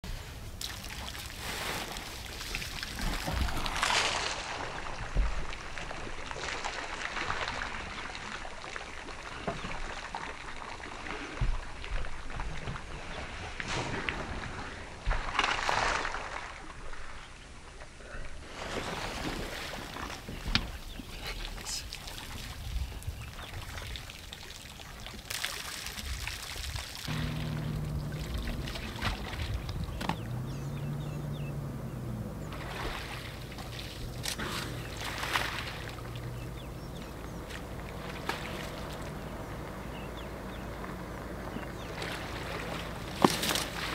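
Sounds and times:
water splashing and trickling: 0.0 - 43.9
water pouring and dripping: 21.6 - 31.0
dull low thump: 27.1 - 32.6
low steady hum: 27.1 - 43.9.

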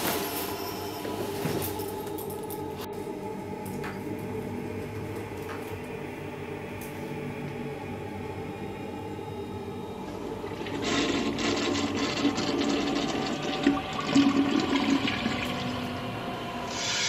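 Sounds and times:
toilet flushing: 10.0 - 17.0.

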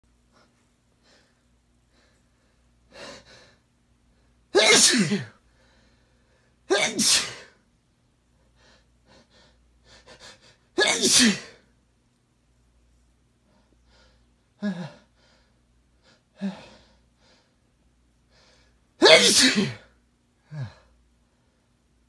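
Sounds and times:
man sneezing loudly: 4.5 - 5.4, 6.7 - 7.6, 10.8 - 11.6, 19.0 - 19.9.

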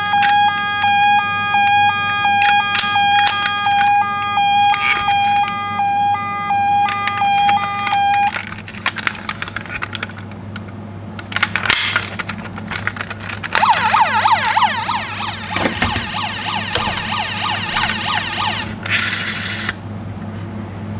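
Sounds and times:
fast warbling toy siren: 0.0 - 8.4, 13.5 - 19.2
toy siren two-tone: 0.0 - 8.4, 13.6 - 18.8.

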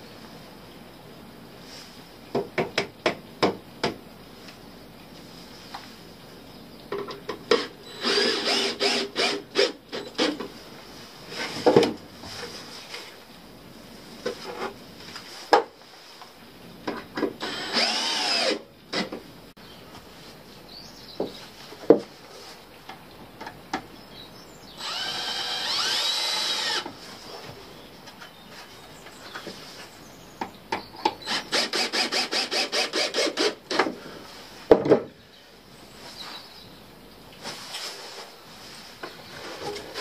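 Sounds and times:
cordless drill boring into wood: 7.8 - 10.3, 17.4 - 18.7, 24.8 - 26.9, 31.3 - 33.8.

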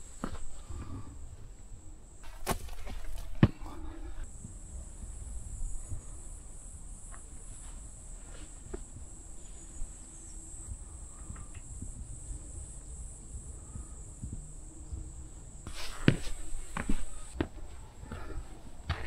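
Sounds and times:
footsteps on trail: 0.0 - 1.1, 2.2 - 4.2, 13.7 - 19.0
insects chirring: 0.0 - 19.0.

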